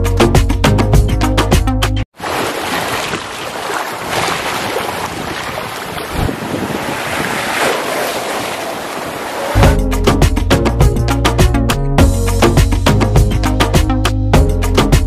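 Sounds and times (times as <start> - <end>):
waves splashing over rocks: 2.2 - 9.7
wind on microphone: 4.6 - 8.6.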